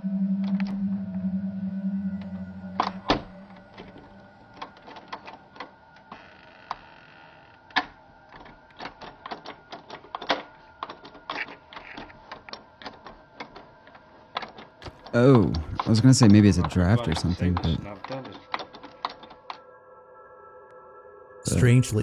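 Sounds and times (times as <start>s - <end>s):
doorknob turning and rattling: 7.7s - 19.5s.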